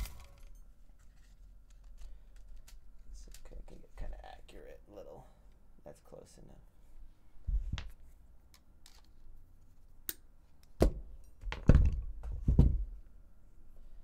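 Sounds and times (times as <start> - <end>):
thunks and knocks on work surface: 10.8 - 12.9.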